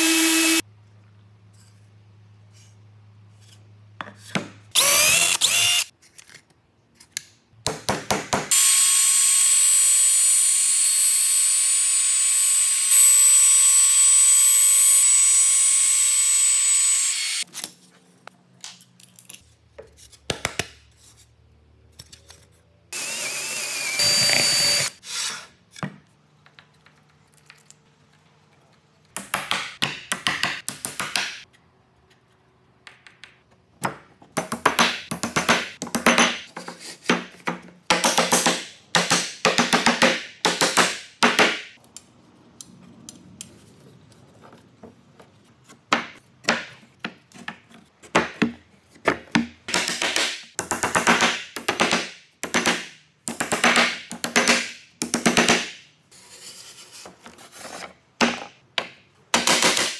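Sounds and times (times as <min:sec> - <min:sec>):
router whining: 0:00.0 - 0:00.6, 0:04.8 - 0:05.9, 0:08.5 - 0:17.4, 0:23.0 - 0:25.0.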